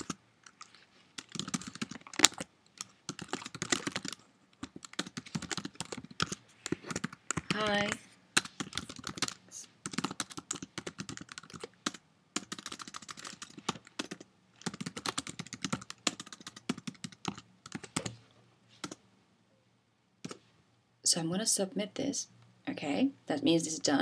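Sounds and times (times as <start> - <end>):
typing on computer keyboard: 0.0 - 18.2.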